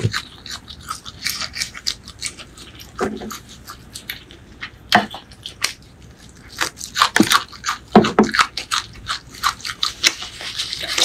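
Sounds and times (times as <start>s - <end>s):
chewing crunches: 0.0s - 11.0s.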